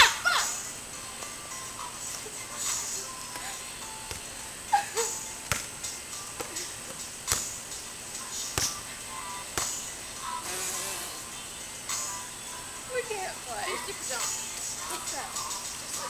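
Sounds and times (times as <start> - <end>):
background music: 0.0 - 16.0.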